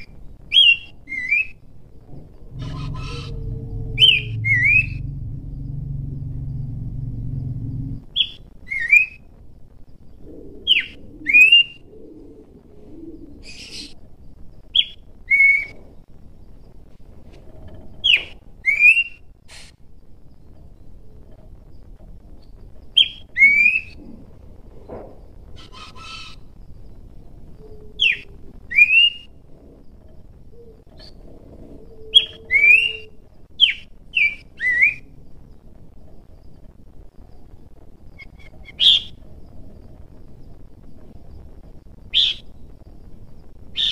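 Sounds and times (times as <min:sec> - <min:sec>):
bird singing whistled notes: 0:00.0 - 0:01.6, 0:02.4 - 0:09.3, 0:18.1 - 0:19.3, 0:22.9 - 0:24.0, 0:27.6 - 0:29.3, 0:31.9 - 0:35.2, 0:42.1 - 0:42.7
bird calling with whistles: 0:02.5 - 0:05.2.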